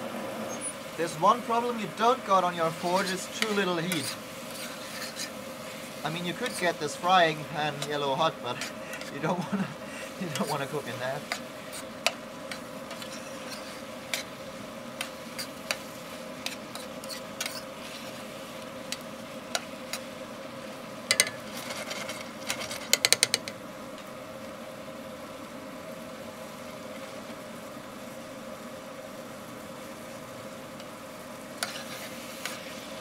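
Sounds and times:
meat sizzling in frying pan: 0.0s - 33.0s
steady hum: 0.0s - 33.0s
spatula scraping pan: 0.5s - 20.1s, 21.1s - 23.2s, 31.6s - 33.0s.

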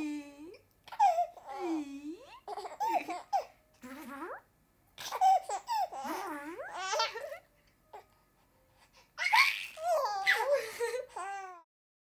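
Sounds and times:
baby laughing: 0.9s - 1.6s, 2.3s - 4.4s, 5.0s - 7.5s, 9.2s - 11.6s.

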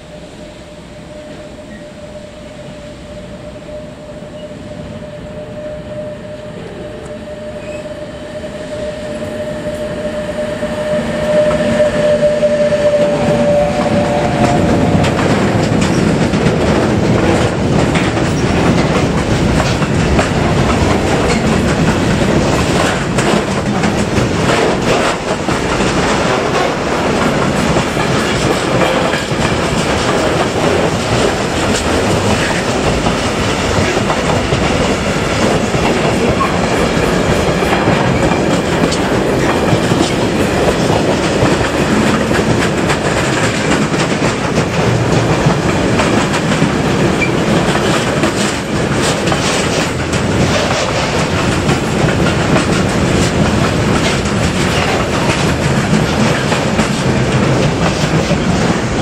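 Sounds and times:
locomotive whine: 0.0s - 59.0s
freight wagons rumbling and clacking: 13.3s - 59.0s.

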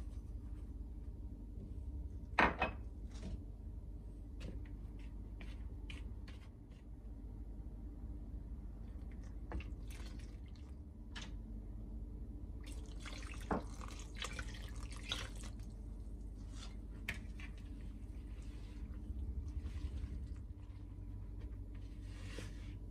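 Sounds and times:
spatula stirring flour in bowl: 4.8s - 7.0s, 16.2s - 22.8s
liquid pouring: 12.6s - 15.7s.

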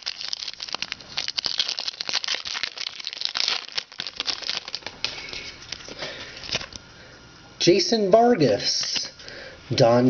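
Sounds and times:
foil wrapper crackling and rustling: 0.0s - 6.8s.

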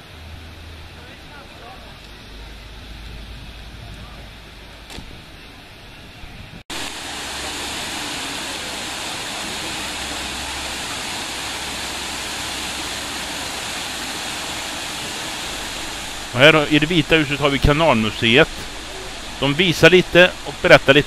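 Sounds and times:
falling water rushing: 0.0s - 5.8s, 6.7s - 21.0s.

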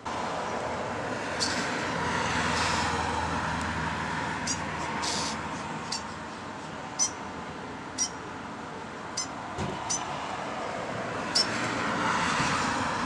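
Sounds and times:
vehicle passing: 0.1s - 13.0s
starling calling: 4.4s - 6.2s, 7.0s - 7.2s.

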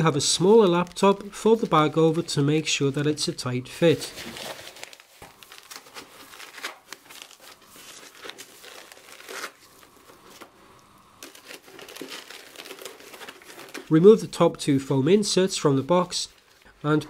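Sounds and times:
mailer bag rustling: 3.8s - 10.6s, 11.2s - 13.9s.

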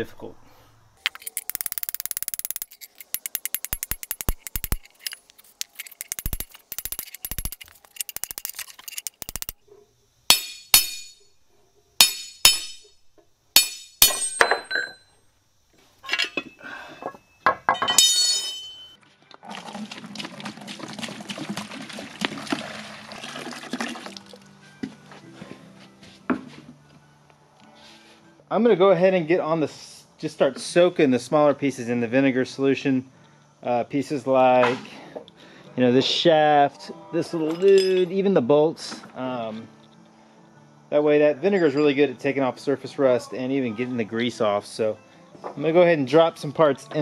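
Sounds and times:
metal knocking and tapping: 1.0s - 9.6s
ringing strikes on steel: 10.3s - 11.3s, 12.0s - 13.0s, 13.6s - 15.1s, 17.7s - 19.0s
liquid pouring into plastic bucket: 19.4s - 24.4s.

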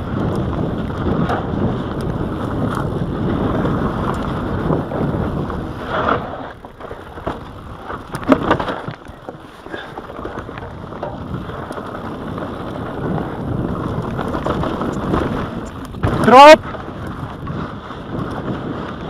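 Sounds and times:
bike tyres crunching over dirt: 0.0s - 19.0s
wind on microphone: 0.0s - 19.0s
bike knocking over bump: 6.0s - 9.4s, 13.8s - 16.3s.

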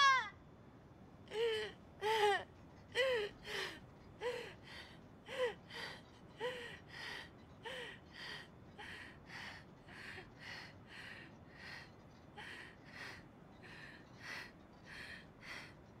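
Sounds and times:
woman's gasping vocal cries: 0.0s - 0.3s.

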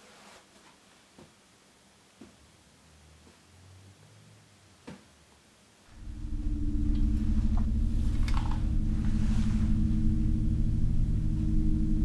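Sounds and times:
low film score drone: 5.9s - 12.0s.

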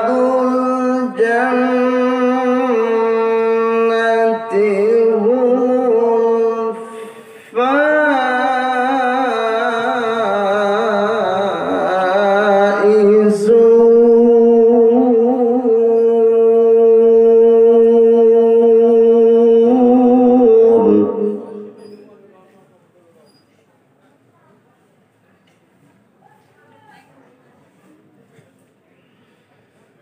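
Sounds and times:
man reciting melodically: 0.0s - 22.4s.

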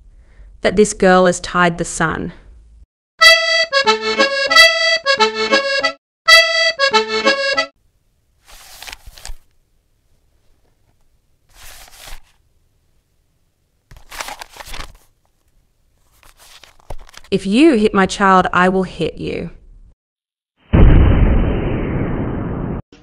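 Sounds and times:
accordion tune: 3.2s - 7.7s.

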